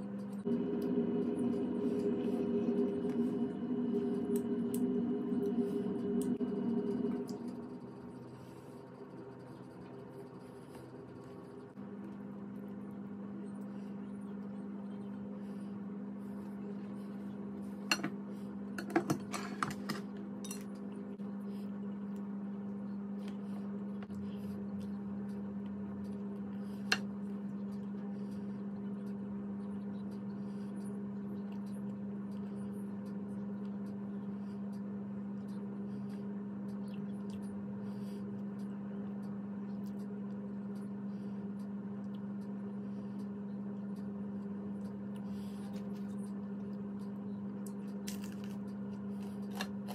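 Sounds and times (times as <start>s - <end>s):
low electrical hum: 0.0s - 49.9s
soft eating clicks: 20.2s - 49.9s.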